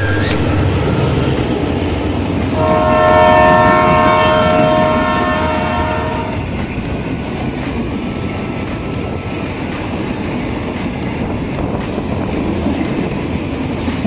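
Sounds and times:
freight train rumbling on rails: 0:00.0 - 0:14.0
locomotive horn: 0:02.5 - 0:06.4.

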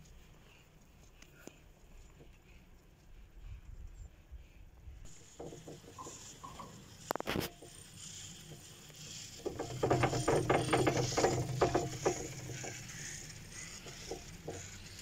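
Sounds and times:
rope rollers clattering: 0:05.1 - 0:15.0.

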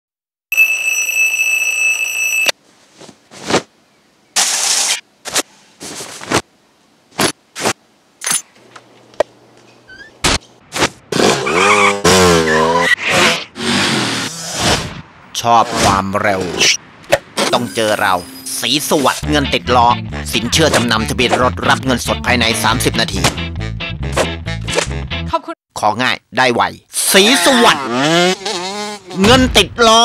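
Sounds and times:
alarm clock ringing: 0:00.5 - 0:02.5
motorcycle engine revving: 0:27.4 - 0:29.2.

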